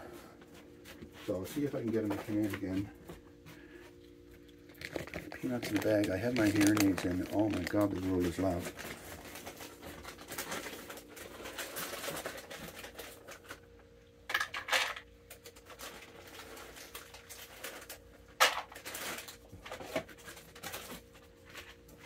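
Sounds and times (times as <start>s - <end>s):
bag of peanuts rustling: 4.7s - 13.7s, 15.4s - 22.0s.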